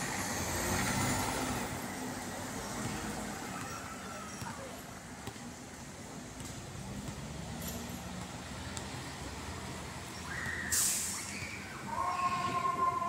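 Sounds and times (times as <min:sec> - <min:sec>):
air brake hiss: 0:10.6 - 0:11.3.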